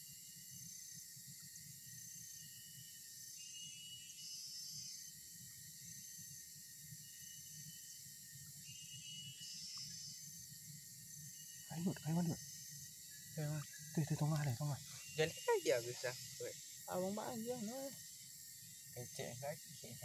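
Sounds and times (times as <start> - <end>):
high insect trill: 0.0 - 20.0
insects buzzing: 0.0 - 20.0.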